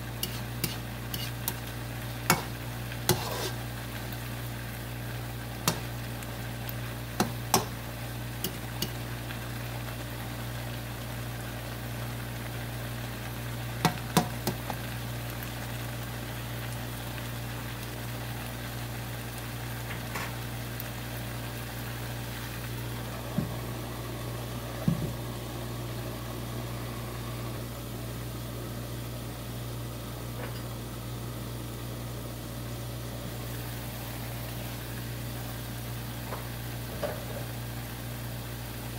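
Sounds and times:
food sizzling in a wok: 0:00.0 - 0:38.9
spatula knocking on pan: 0:07.2 - 0:07.8.

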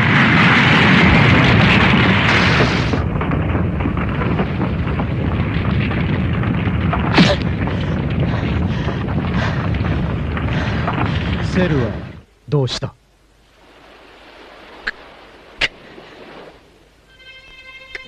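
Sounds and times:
heavy low rumble: 0:00.0 - 0:13.6.

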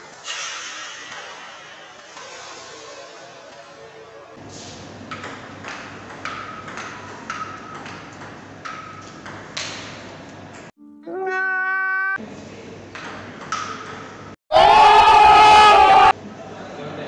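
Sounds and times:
ping pong ball hits: 0:05.1 - 0:09.9.

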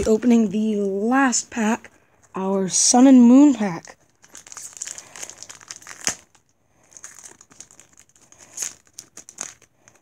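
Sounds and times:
foil wrapper crinkling: 0:03.6 - 0:10.0.

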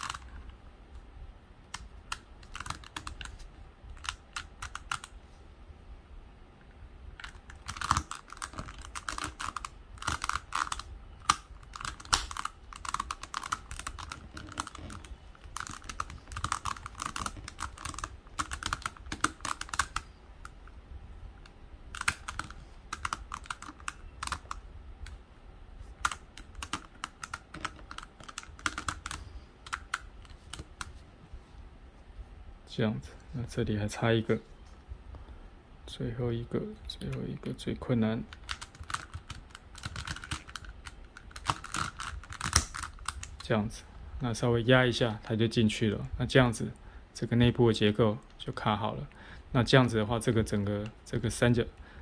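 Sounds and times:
plastic puzzle pieces clicking: 0:00.0 - 0:00.4, 0:01.7 - 0:05.1, 0:07.2 - 0:20.6, 0:21.9 - 0:25.2, 0:26.0 - 0:30.9, 0:38.3 - 0:43.4.

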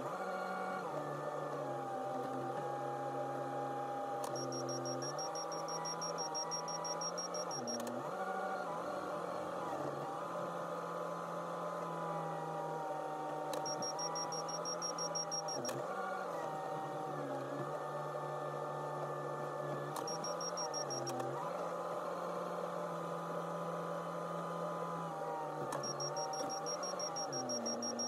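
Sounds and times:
rapid high-pitched beeping: 0:04.4 - 0:07.8, 0:13.6 - 0:15.7, 0:20.0 - 0:21.0, 0:25.8 - 0:28.0.

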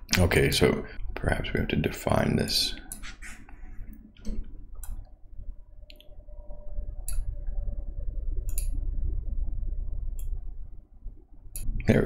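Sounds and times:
low steady hum: 0:00.0 - 0:12.0
keyboard and mouse clicks: 0:08.4 - 0:08.8.

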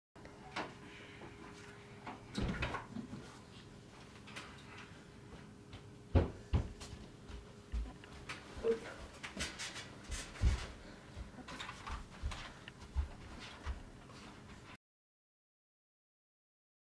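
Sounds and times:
faint steady hum: 0:00.2 - 0:14.7
knocks and thuds near door: 0:06.1 - 0:06.8.

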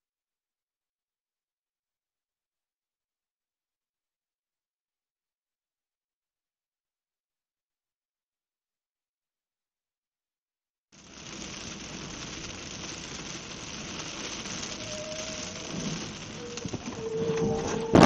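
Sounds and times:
heavy rain on car windshield: 0:11.0 - 0:18.0
wiper blades sweeping glass: 0:11.0 - 0:18.0.

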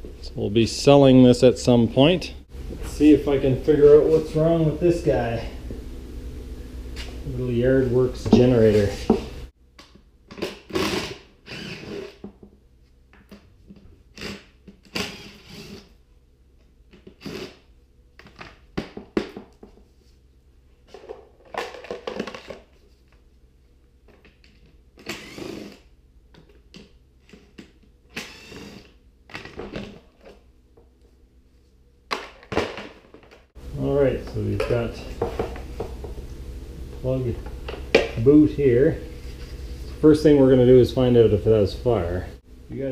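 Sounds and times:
cordless screwdriver running: 0:11.5 - 0:12.0, 0:25.0 - 0:25.8, 0:28.2 - 0:28.9.

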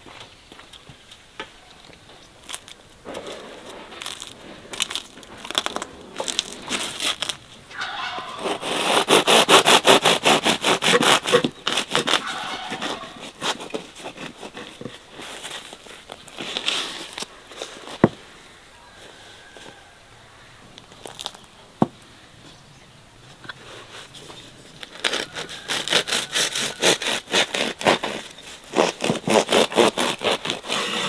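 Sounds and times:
bread crust crackling under knife: 0:01.9 - 0:07.6, 0:08.4 - 0:18.1, 0:23.9 - 0:31.0.

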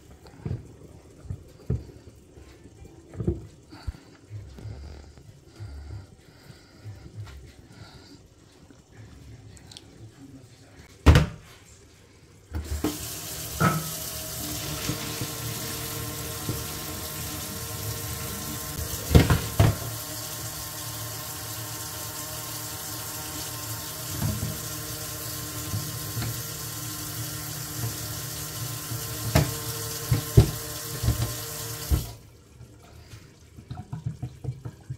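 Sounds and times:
tap running into a steel sink: 0:12.6 - 0:17.3, 0:18.1 - 0:20.0, 0:23.9 - 0:26.5, 0:28.8 - 0:32.1.

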